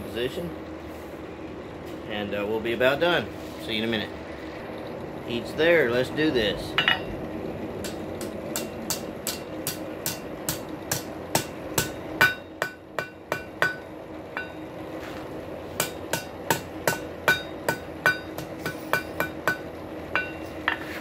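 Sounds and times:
anvil ringing: 7.8s - 14.6s, 15.8s - 20.8s
hammer striking metal on anvil: 7.8s - 14.6s, 15.8s - 20.9s.

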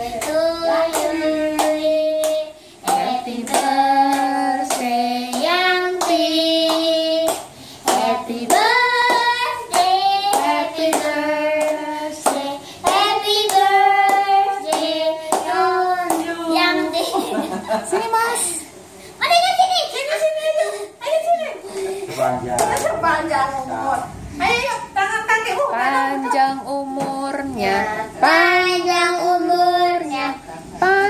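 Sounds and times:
group singing a birthday song: 0.0s - 18.6s, 25.7s - 31.0s.

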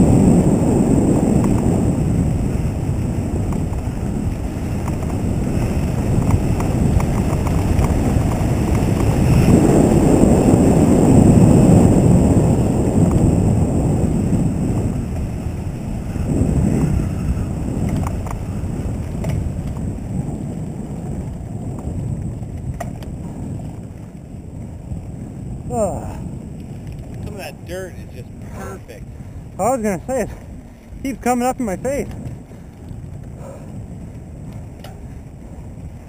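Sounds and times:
bike tyre and frame rumble: 0.0s - 36.0s
wind rushing over microphone: 0.0s - 36.0s.

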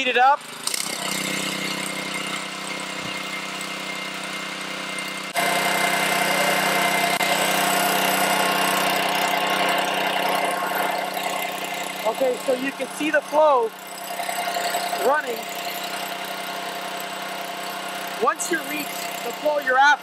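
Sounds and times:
small gasoline engine running: 0.0s - 20.0s.

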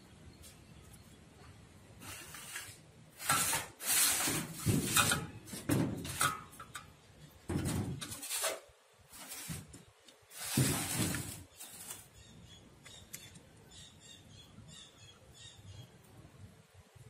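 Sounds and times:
chopsticks scraping a steel platter: 2.0s - 6.8s
rice paper rustling: 10.3s - 12.1s.

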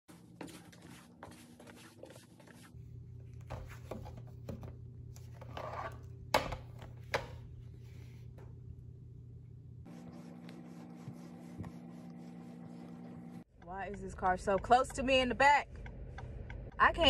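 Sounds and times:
footsteps in slippers on hardwood: 0.1s - 2.7s
steady low hum: 2.6s - 17.0s.

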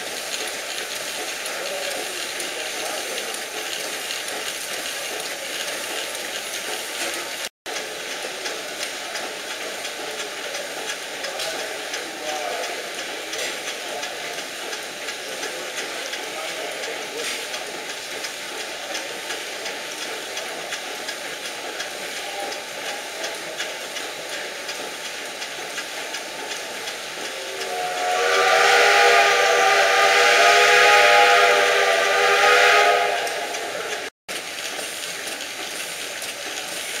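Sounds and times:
steam engine hissing: 0.0s - 37.0s
steam whistle blowing: 27.4s - 34.0s.

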